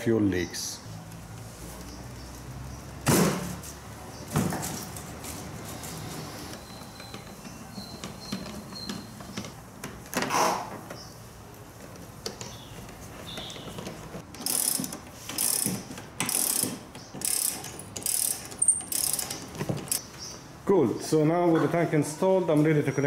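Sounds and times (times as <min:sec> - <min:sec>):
hand ratchet clicking: 0:14.3 - 0:20.0.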